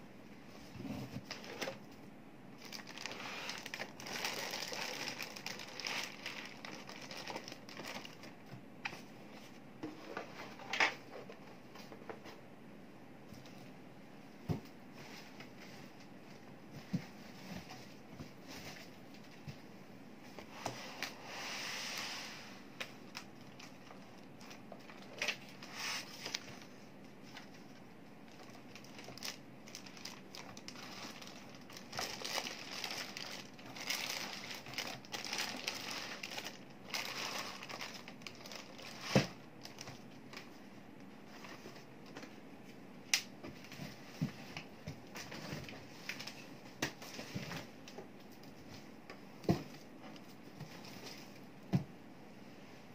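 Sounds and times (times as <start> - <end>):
plastic packaging crinkling: 2.6 - 8.4, 28.3 - 40.5.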